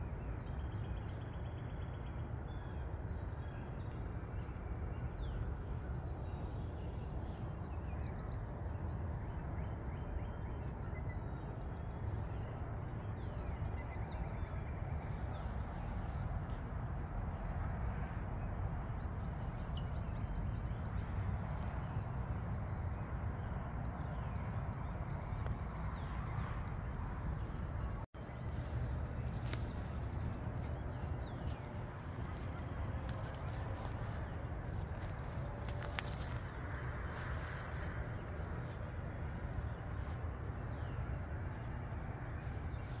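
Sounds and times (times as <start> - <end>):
low outdoor rumble: 0.0 - 43.0
small birds chirping: 24.9 - 43.0.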